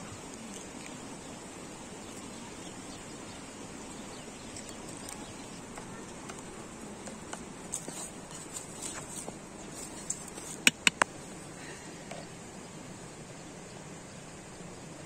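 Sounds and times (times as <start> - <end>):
outdoor background hiss: 0.0 - 15.0.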